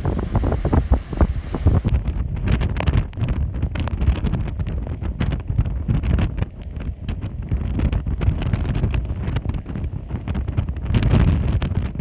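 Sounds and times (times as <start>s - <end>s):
river rushing: 0.0s - 1.9s
wind buffeting microphone: 0.0s - 12.0s.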